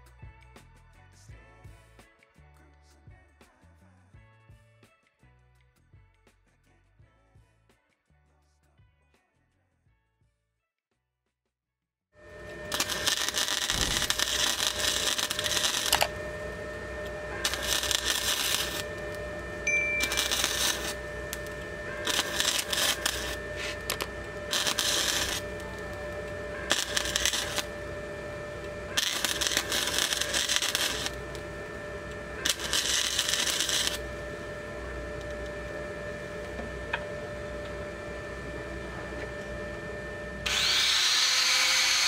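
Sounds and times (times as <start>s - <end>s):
welder hum: 12.2s - 42.0s
welder crackling: 12.3s - 37.0s, 40.4s - 42.0s
angle grinder running: 12.3s - 37.9s, 40.2s - 42.0s.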